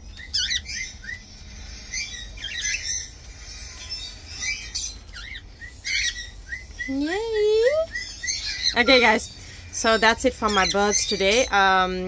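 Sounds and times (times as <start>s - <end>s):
cockatiel chirping: 0.1s - 7.1s.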